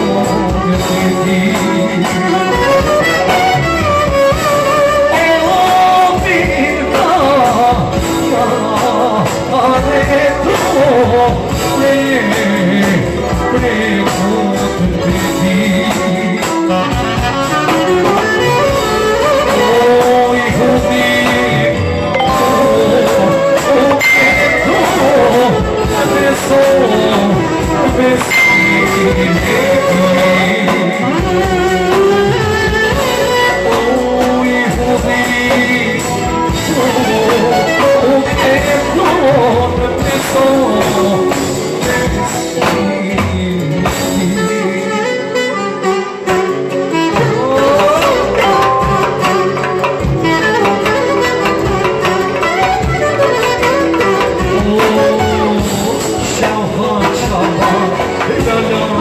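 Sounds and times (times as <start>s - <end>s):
person singing: 0.0s - 45.9s, 46.8s - 59.0s
folk band playing: 0.0s - 59.0s
clarinet playing ornamented melody: 21.8s - 26.2s, 44.9s - 55.5s.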